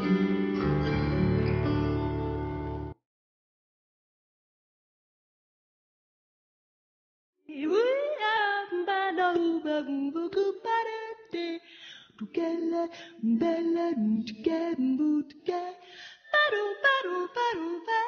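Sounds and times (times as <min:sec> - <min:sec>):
woman singing unaccompanied: 0:07.5 - 0:18.0.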